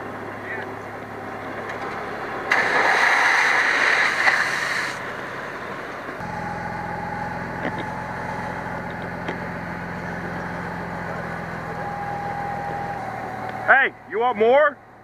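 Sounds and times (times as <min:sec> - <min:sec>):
pump engine humming: 0:00.0 - 0:15.0
hissing rush of air and water: 0:02.5 - 0:05.0.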